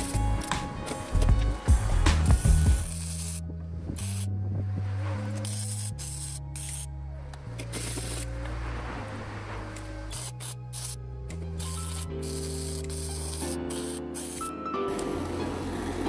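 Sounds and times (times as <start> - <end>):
background music with low notes: 0.0 - 16.0
welding arc crackling and hissing: 1.7 - 3.4, 5.5 - 6.9, 10.1 - 11.0, 11.6 - 14.6.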